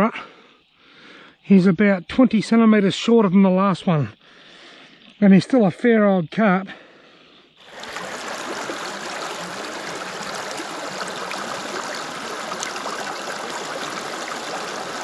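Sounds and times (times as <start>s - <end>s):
running water rushing: 7.6s - 15.0s.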